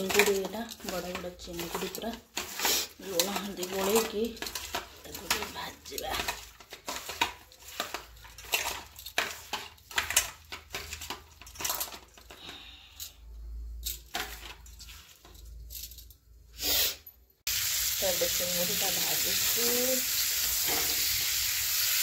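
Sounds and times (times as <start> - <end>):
prawns rubbed in steel bowl: 0.0 - 11.2
bangles clinking against bowl: 0.0 - 16.2.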